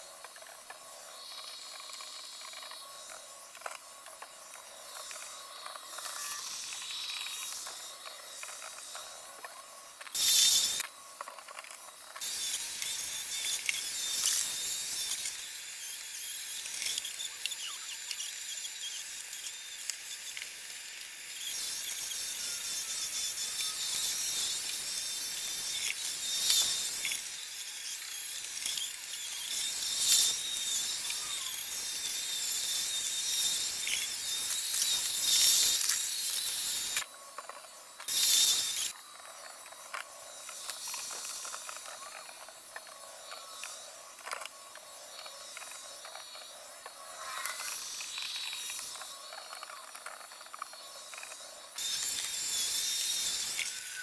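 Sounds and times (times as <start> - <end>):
robot vacuum chatter and hiss: 16.6 - 54.0.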